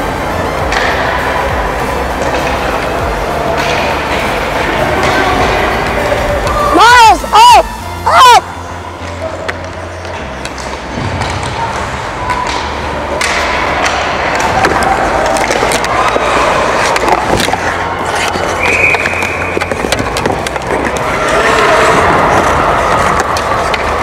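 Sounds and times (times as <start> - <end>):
hockey sticks and puck clacking: 0.0 - 7.8, 8.7 - 24.0
skate blades scraping ice: 12.4 - 24.0.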